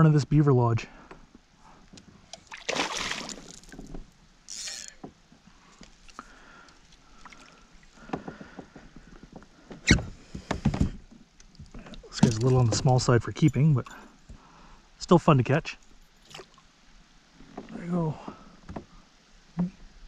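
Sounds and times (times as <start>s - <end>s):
fish splashing in water: 2.4s - 3.8s
knocks and clicks from kayak: 8.0s - 13.0s.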